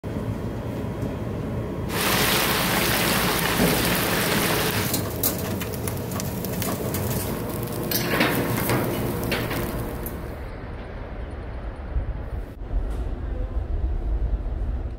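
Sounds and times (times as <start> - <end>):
oil sizzling while deep-frying: 1.9 - 10.3.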